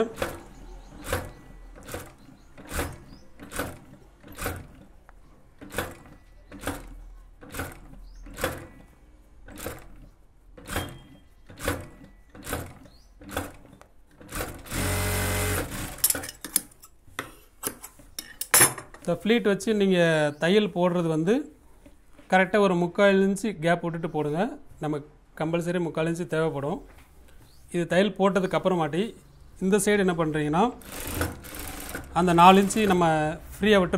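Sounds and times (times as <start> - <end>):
industrial sewing machine stitching: 0.0 - 4.9, 9.5 - 10.0, 10.6 - 16.2, 30.8 - 33.2.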